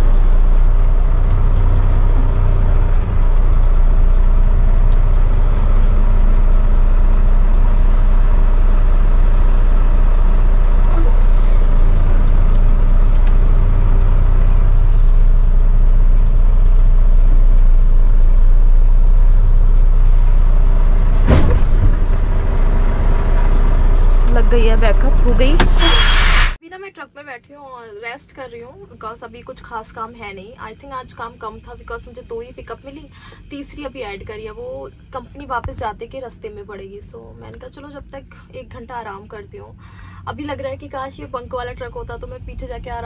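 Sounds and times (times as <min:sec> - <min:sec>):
diesel truck engine running: 0:00.0 - 0:26.6
short sharp burst of noise: 0:25.6 - 0:26.6.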